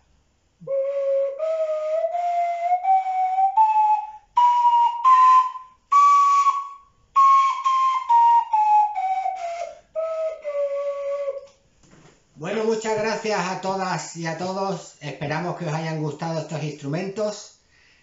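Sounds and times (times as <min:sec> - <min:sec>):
breathy flute notes: 0:00.6 - 0:11.6.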